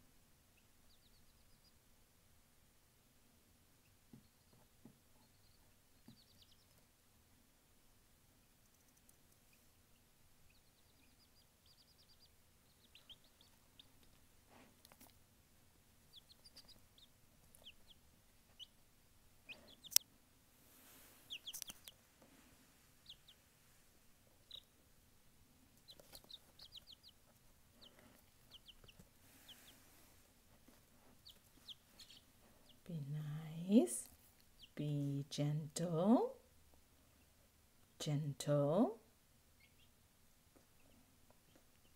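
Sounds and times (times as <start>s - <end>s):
chick peeping: 0.5s - 1.8s, 3.8s - 6.9s, 8.4s - 15.1s, 15.9s - 20.2s, 20.8s - 22.1s, 22.9s - 23.5s, 24.2s - 24.8s, 25.6s - 32.9s, 33.5s - 35.5s, 39.5s - 41.9s.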